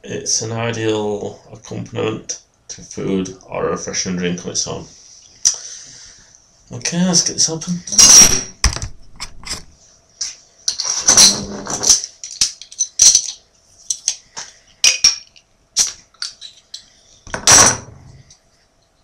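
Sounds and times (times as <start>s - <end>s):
bottle cap clicking and scraping: 10.7s - 16.9s.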